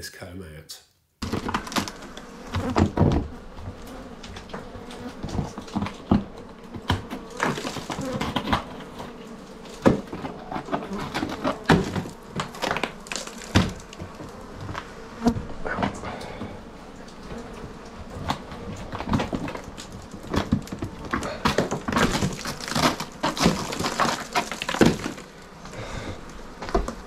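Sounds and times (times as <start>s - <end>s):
honeybees buzzing: 1.2s - 27.0s
honeycomb crunching under a knife: 9.5s - 14.5s, 19.5s - 25.3s.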